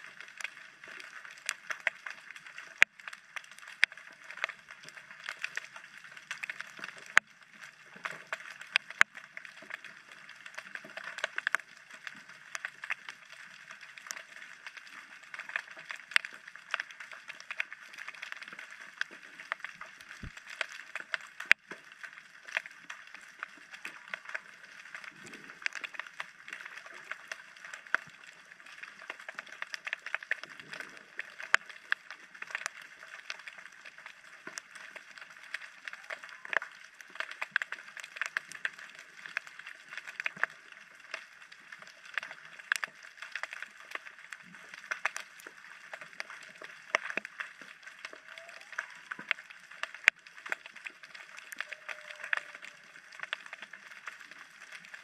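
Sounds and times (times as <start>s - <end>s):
underwater clicks and pops: 15.4s - 23.1s, 44.8s - 54.3s.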